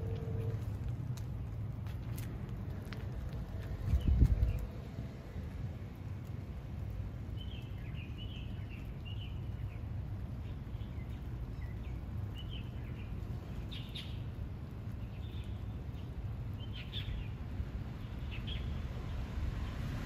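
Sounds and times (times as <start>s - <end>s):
low outdoor rumble: 0.0s - 20.0s
small birds chirping: 3.4s - 19.3s.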